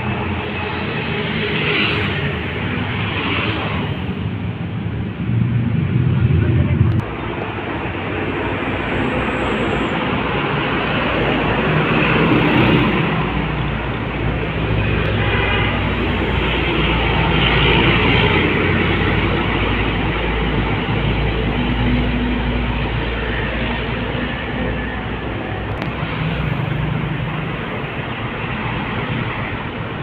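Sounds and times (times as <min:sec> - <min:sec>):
diesel trucks passing: 0:00.0 - 0:30.0
motorcycles passing: 0:00.0 - 0:30.0
low engine rumble: 0:03.8 - 0:11.5.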